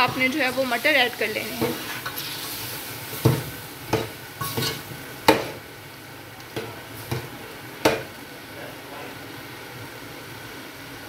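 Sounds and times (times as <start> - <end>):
light sizzle: 0.0 - 11.0
spatula scraping metal pot: 1.5 - 2.7, 4.4 - 4.9.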